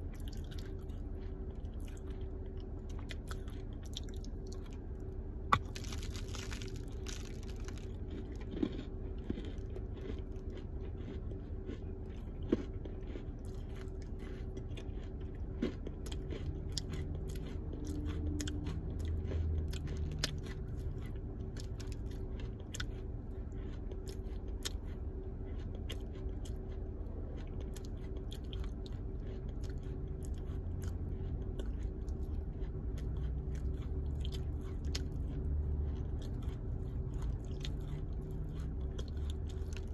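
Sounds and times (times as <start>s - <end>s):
dry clay crunching and crumbling: 5.5s - 22.9s.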